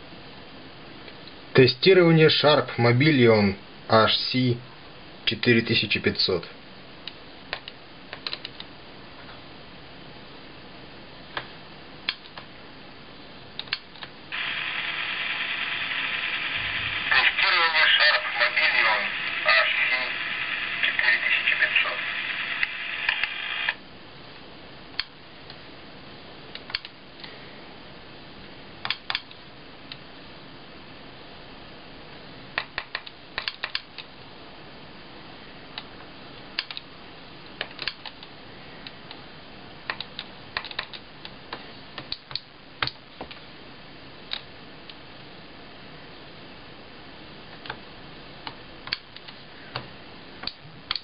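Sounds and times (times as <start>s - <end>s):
faint hiss: 9.1s - 24.8s.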